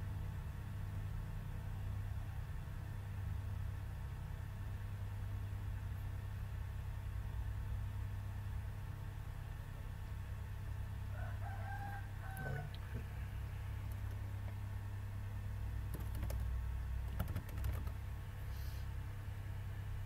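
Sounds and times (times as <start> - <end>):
steady low hum: 0.0 - 20.0
keyboard typing: 15.9 - 18.0.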